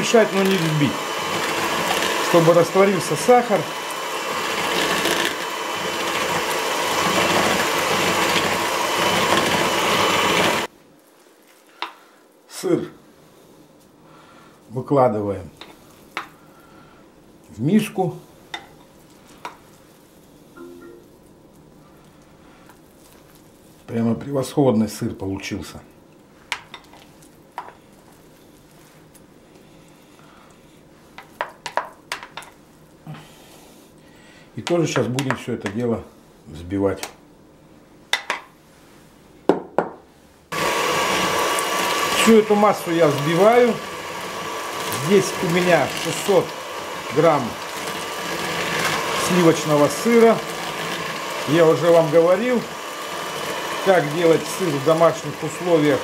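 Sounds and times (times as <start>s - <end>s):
electric hand mixer running: 0.0s - 10.7s, 40.5s - 56.0s.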